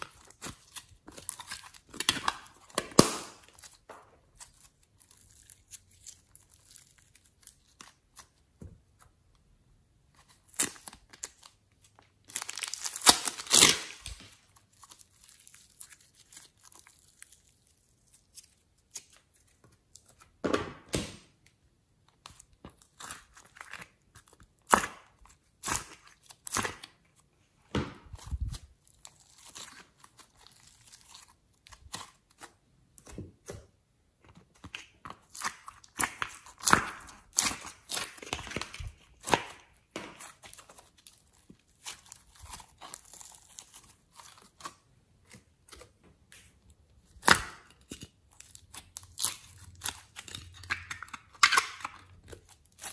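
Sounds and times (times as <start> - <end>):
hands squishing slime: 0.0 - 9.3, 10.1 - 21.0, 22.0 - 52.9
sticky crackling and tearing: 12.2 - 20.2, 28.1 - 33.2, 35.2 - 46.0, 47.0 - 52.9.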